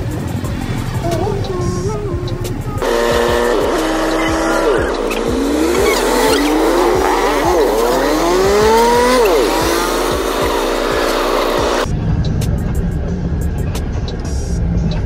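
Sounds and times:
motor revving through gears: 2.8s - 11.9s.

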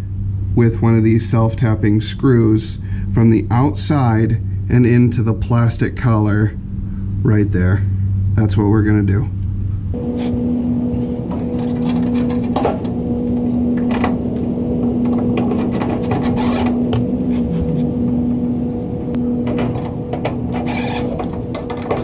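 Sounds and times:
clicks and scraping on sheet metal: 11.2s - 17.9s, 19.2s - 22.0s.

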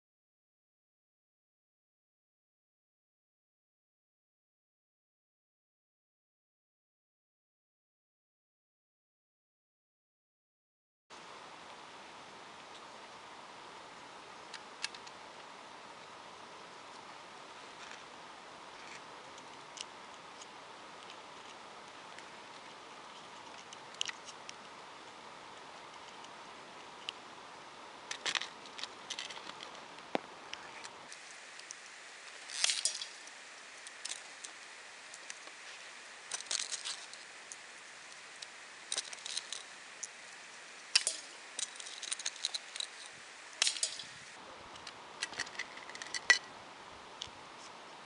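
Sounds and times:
small clicks and metallic clinks: 32.4s - 35.5s, 40.9s - 44.2s.

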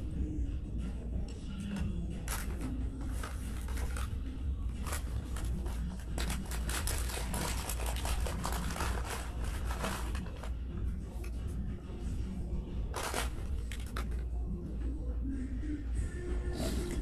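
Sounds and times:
steady low hum: 0.0s - 17.0s
paper napkin crinkling: 5.3s - 10.3s.

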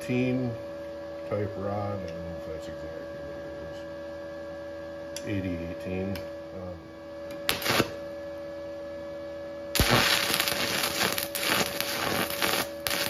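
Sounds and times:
welding arc crackling: 7.4s - 8.0s, 9.7s - 13.0s
electrode scratching on steel: 7.5s - 7.9s, 9.8s - 13.0s.

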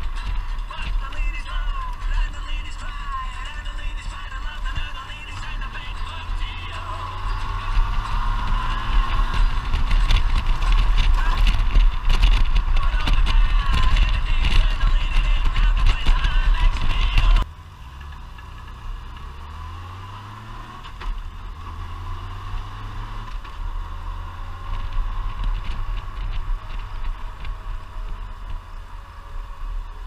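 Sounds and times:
wind noise: 0.0s - 17.5s, 22.4s - 28.7s
motorcycle engine hum: 0.0s - 30.0s.

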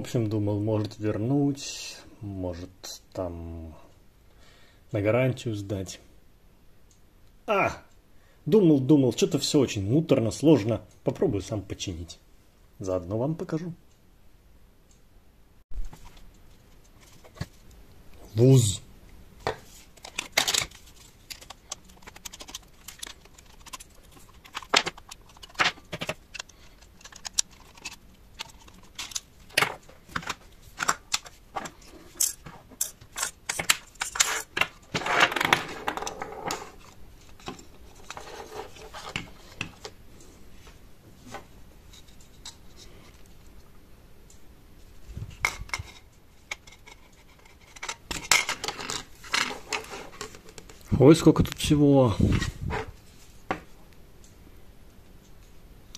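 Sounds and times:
plastic parts clicking and rattling: 19.4s - 40.0s, 45.3s - 51.5s.

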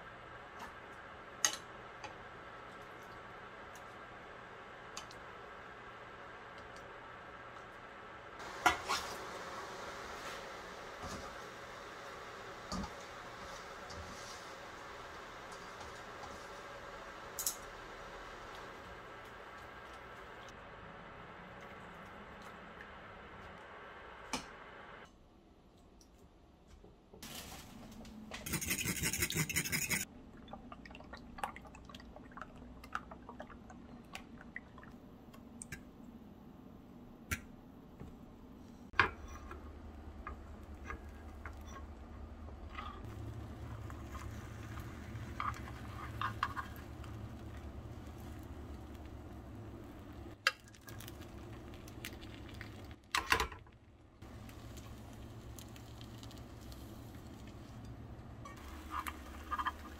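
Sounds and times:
low steady hum: 27.2s - 59.9s.

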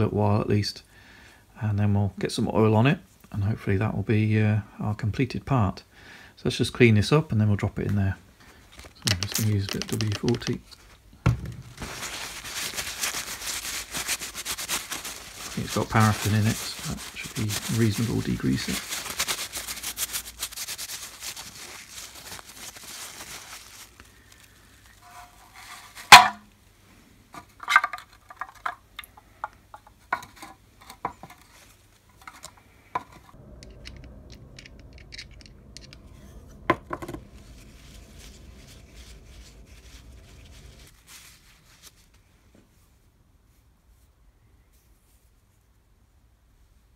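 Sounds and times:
paper towel rubbing metal nut: 11.8s - 24.1s
low steady hum: 30.3s - 42.4s
metal nut clicking and clinking: 32.2s - 36.0s.

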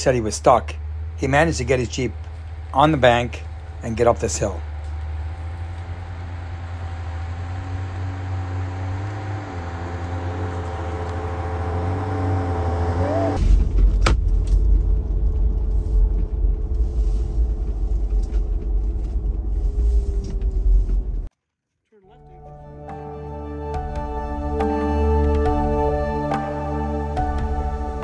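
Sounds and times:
car engine under load: 0.0s - 21.3s.

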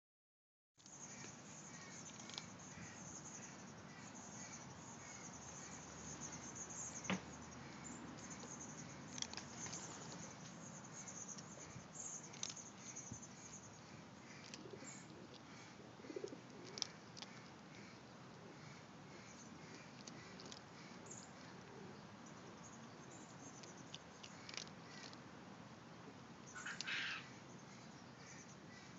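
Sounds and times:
faint bird chirps: 26.4s - 28.9s.

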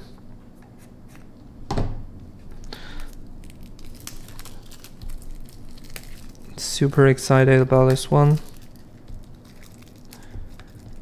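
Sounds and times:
plastic wrap crinkling and tearing: 2.6s - 11.0s
small plastic crackles: 2.6s - 11.0s
knife slitting plastic wrap: 3.4s - 11.0s.

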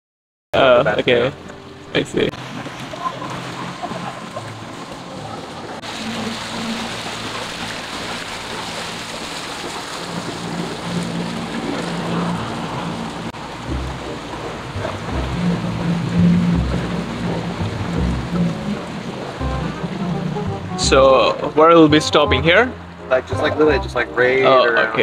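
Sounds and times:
boat motor running: 0.6s - 25.0s
wind and water rushing: 0.6s - 25.0s
heavy low thumps: 13.4s - 24.0s.

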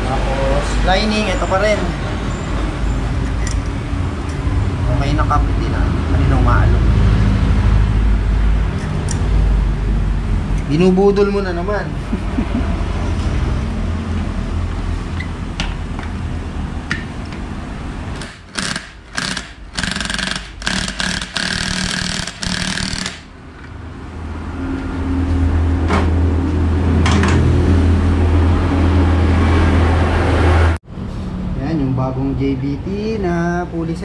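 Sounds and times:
cordless drill whirring: 18.2s - 23.3s.

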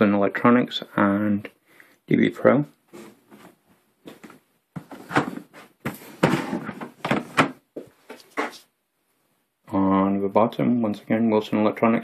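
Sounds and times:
cardboard box scraping and knocking: 4.8s - 7.6s.

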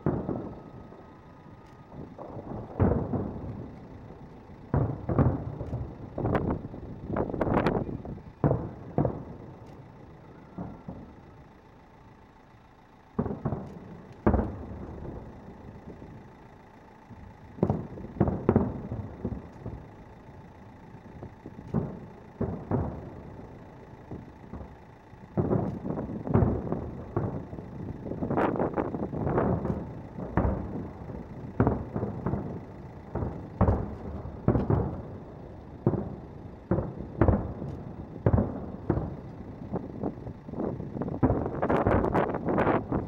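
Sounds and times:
firework shells bursting with echo: 0.0s - 43.0s.

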